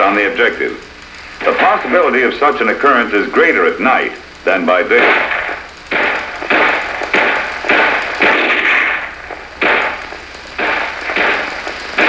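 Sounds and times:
rifle shots echoing: 0:01.3 - 0:02.3, 0:04.9 - 0:12.0.

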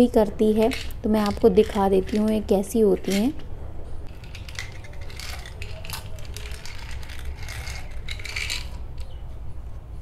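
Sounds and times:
pills rattling against plastic: 0:00.4 - 0:03.4, 0:04.1 - 0:09.2.

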